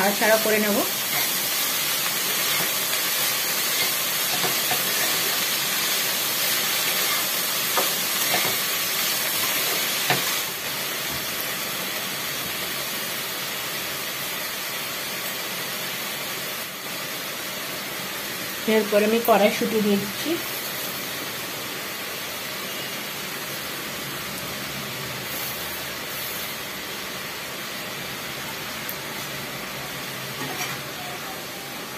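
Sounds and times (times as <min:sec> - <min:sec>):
vegetables sizzling in a pan: 0:00.0 - 0:31.9
spatula scraping a pan: 0:30.4 - 0:30.9.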